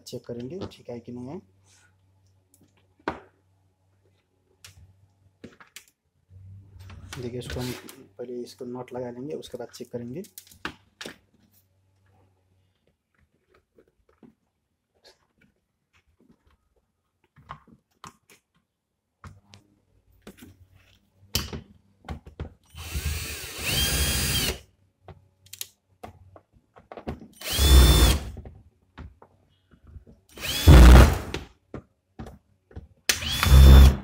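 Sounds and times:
electric drill whining: 0:22.8 - 0:24.6, 0:27.4 - 0:28.3, 0:30.4 - 0:31.2, 0:33.2 - 0:34.0.

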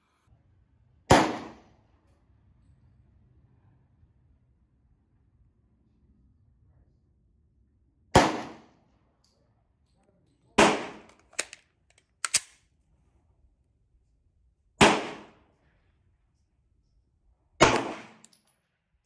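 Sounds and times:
pistol shots: 0:01.1 - 0:01.6, 0:10.6 - 0:11.6, 0:14.8 - 0:15.3, 0:17.6 - 0:18.3.

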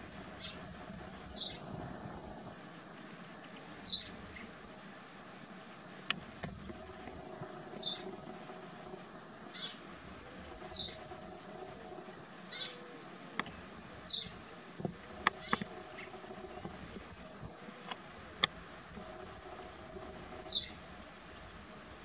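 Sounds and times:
kestrel calling: 0:00.0 - 0:01.6, 0:03.8 - 0:04.5, 0:06.6 - 0:14.4, 0:15.1 - 0:16.9, 0:19.0 - 0:20.8
sharp clicks: 0:06.1 - 0:08.2, 0:14.2 - 0:16.8.

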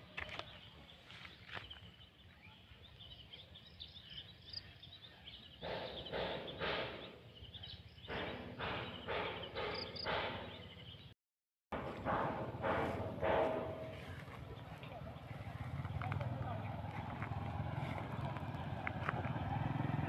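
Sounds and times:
footsteps crunching on gravel: 0:00.0 - 0:02.1, 0:12.6 - 0:19.7.

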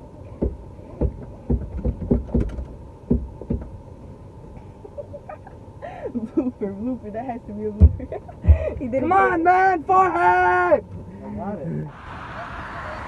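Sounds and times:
seatbelt buckle knocks and clicks: 0:00.4 - 0:03.7.

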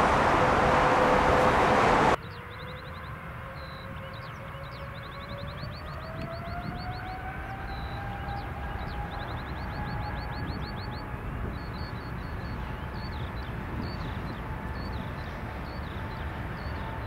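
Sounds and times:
birds chirping: 0:00.0 - 0:02.2
jet engines spooling up: 0:00.0 - 0:02.2.

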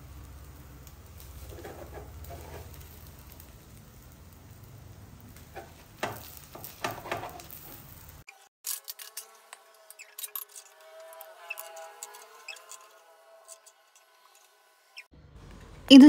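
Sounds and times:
omelette sizzling in a pan: 0:00.0 - 0:08.3
spatula scraping and tapping: 0:01.5 - 0:02.8, 0:05.5 - 0:07.7.

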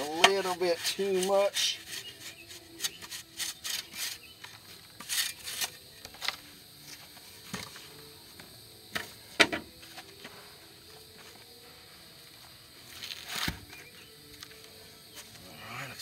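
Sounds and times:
shovel scraping soil: 0:00.0 - 0:05.8.

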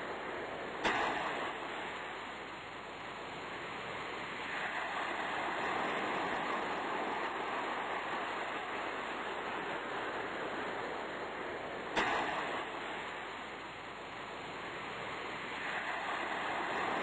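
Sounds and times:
sea surf rushing: 0:00.0 - 0:17.0.

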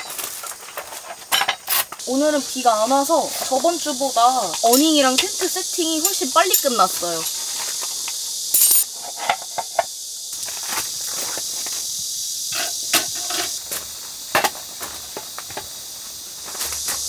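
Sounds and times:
camping gear clicks and rustles: 0:00.0 - 0:02.0
insects hissing: 0:00.0 - 0:17.0.

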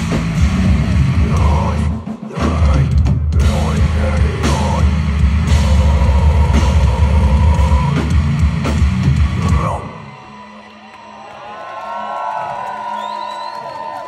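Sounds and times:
live rock band playing: 0:00.0 - 0:10.1.

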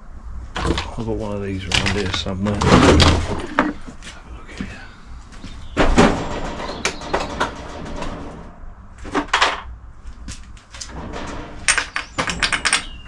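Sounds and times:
tools clattering: 0:10.8 - 0:13.0.

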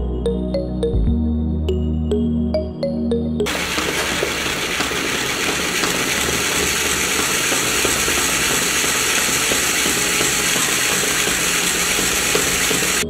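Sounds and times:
small electric motor running: 0:03.5 - 0:13.0.

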